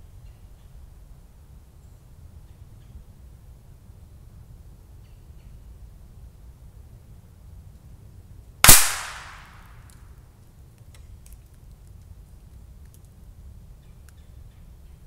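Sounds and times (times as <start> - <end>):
bullet hitting steel plate: 8.6 - 9.6.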